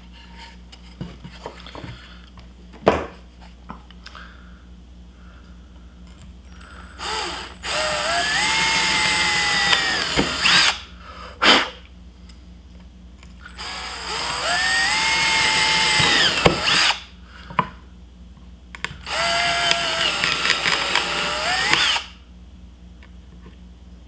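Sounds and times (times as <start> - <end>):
cordless drill motor whine: 6.7 - 10.8, 13.5 - 17.1, 19.0 - 22.2.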